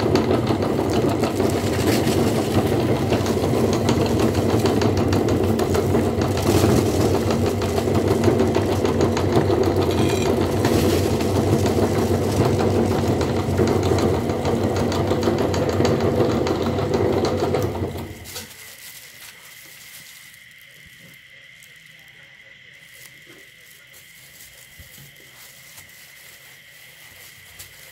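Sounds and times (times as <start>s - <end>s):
meat grinder crunching: 0.0s - 22.0s, 22.7s - 27.9s.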